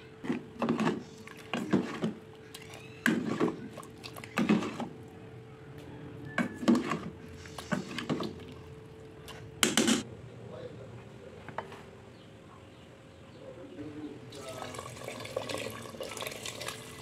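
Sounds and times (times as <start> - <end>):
spoon scraping metal pot: 0.2 - 4.9, 6.4 - 8.4.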